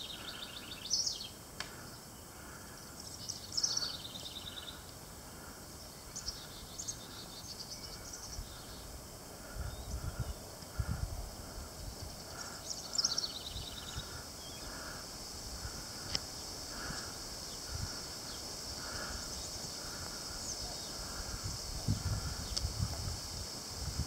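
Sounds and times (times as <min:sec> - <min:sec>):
birdsong: 0:00.0 - 0:22.7
songbird trill: 0:00.0 - 0:22.9
high insect hum: 0:00.0 - 0:24.0
wind rumble on microphone: 0:08.2 - 0:12.4, 0:17.6 - 0:18.1, 0:19.9 - 0:24.0.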